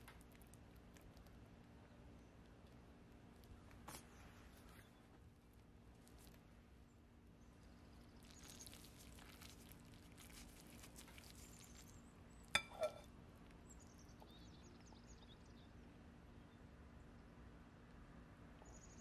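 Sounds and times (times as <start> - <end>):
faint bird chirps: 6.9 - 9.5
fork clinking against bowl: 12.6 - 13.1.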